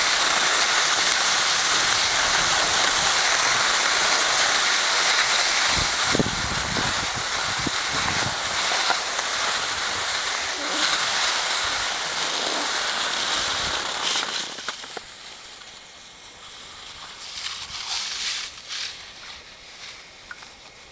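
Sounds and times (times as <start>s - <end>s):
wind rumbling on microphone: 0.0s - 14.6s
skis scraping over snow: 0.0s - 20.9s.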